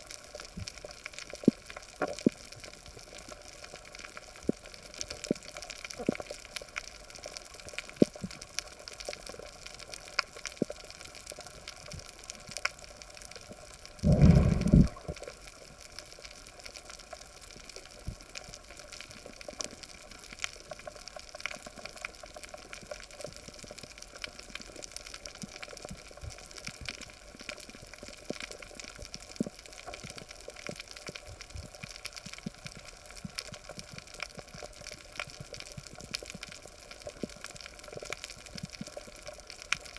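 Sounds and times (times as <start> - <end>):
loud low rumble: 14.0 - 15.1
underwater hiss: 14.0 - 15.4.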